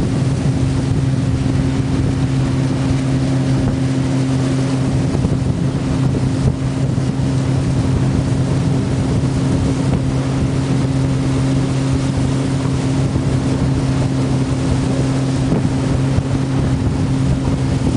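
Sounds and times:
boat motor droning: 0.0s - 17.9s
water rushing: 0.0s - 17.9s
wind: 0.0s - 17.9s.

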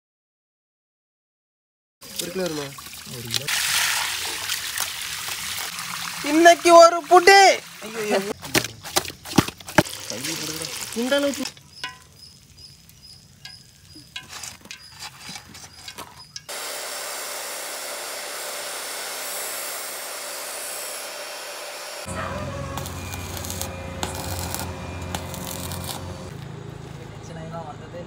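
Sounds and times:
abrasive saw grinding steel: 13.5s - 26.4s
arc welder crackling: 15.8s - 26.5s.

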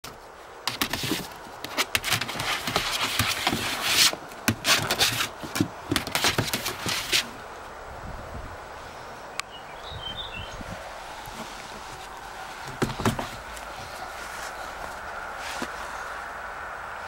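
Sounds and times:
claws scratching on plastic: 0.1s - 7.4s, 11.0s - 16.1s
fur scraping across sheet: 10.8s - 16.2s.

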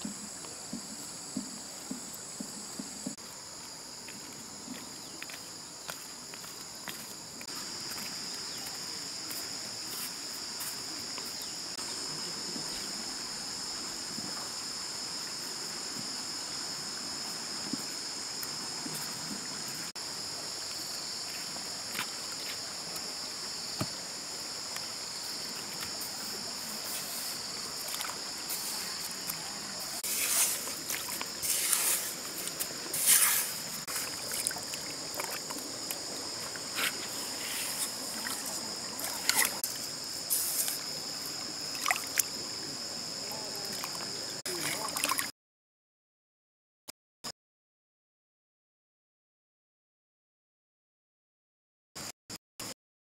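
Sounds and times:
insects buzzing: 0.0s - 45.3s
mud scraping and splashing: 26.8s - 40.8s.

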